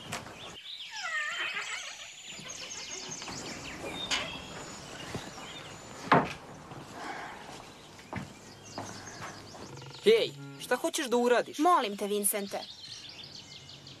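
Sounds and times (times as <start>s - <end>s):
wooden door creaking: 0.0s - 5.0s, 6.0s - 6.6s, 8.1s - 10.8s.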